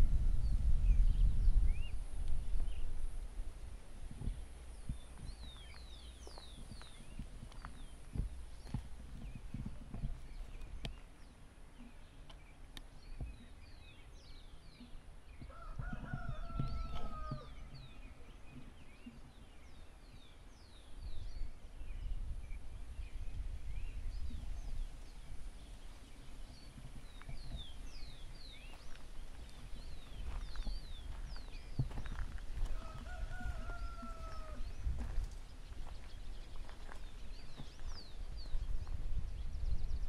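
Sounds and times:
small birds chirping: 0.0 - 40.0
rooster crowing: 15.5 - 17.5, 32.7 - 34.6.

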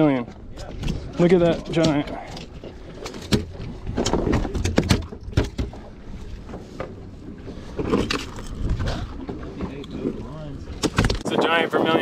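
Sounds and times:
sharp knocks and clicks: 3.0 - 5.8.

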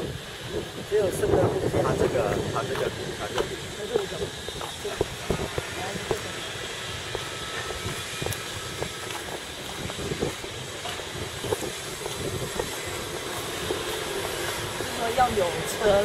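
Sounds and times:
distant road traffic hiss: 0.0 - 16.0.

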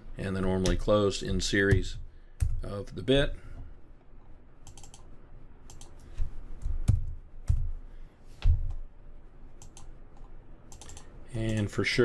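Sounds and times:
computer keyboard typing: 4.6 - 5.1, 5.7 - 6.0, 9.6 - 11.8.

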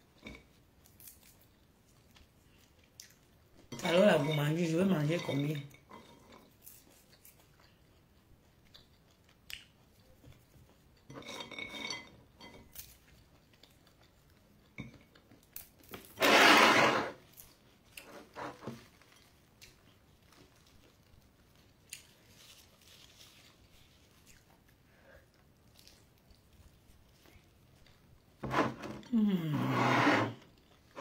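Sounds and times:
chewing: 0.2 - 3.7, 5.7 - 16.0, 17.2 - 28.4
plastic bag rustling: 22.2 - 24.3.

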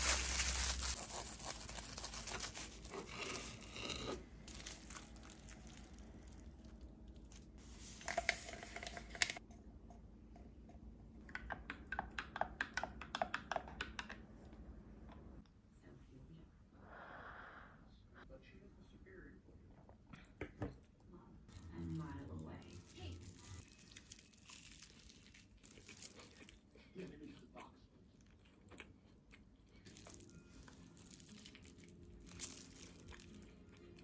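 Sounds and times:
paper sachet tearing: 0.0 - 3.8, 4.5 - 9.4, 22.5 - 26.5, 29.9 - 34.0
wrapping paper crinkling: 0.0 - 3.8, 4.4 - 9.4, 21.5 - 26.7, 29.9 - 34.0.

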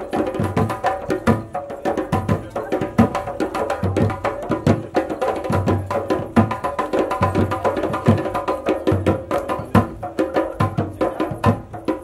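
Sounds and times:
music with busy drum rhythm: 0.0 - 12.0.

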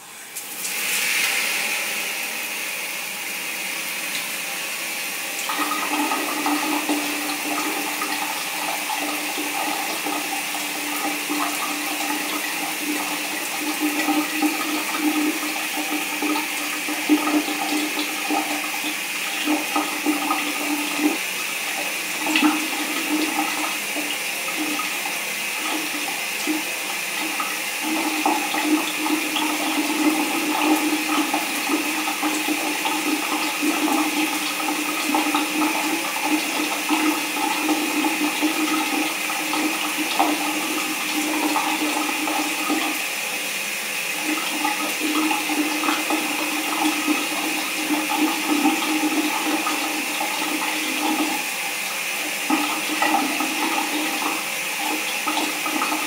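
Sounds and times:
shower spray hiss: 0.5 - 2.2.

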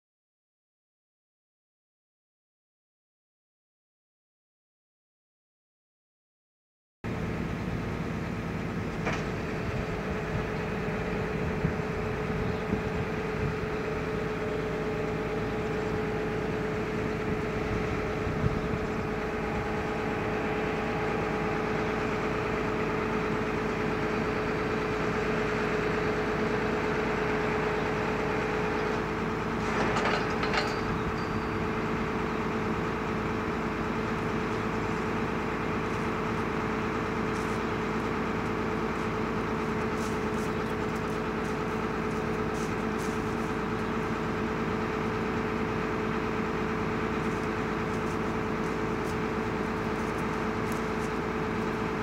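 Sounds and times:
tractor diesel engine running: 7.1 - 52.0
metallic clatter: 29.6 - 31.9.

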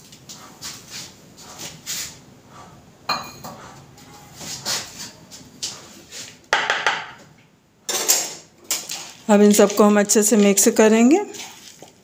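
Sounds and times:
spoon scraping a bowl: 0.6 - 6.3.

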